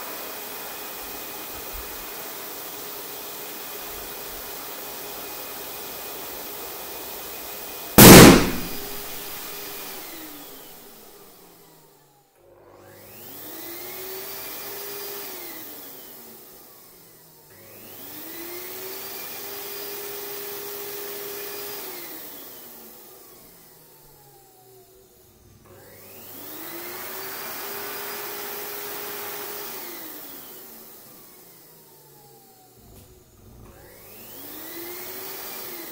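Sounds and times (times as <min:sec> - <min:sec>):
balloon bursting bang: 0:08.0 - 0:09.5.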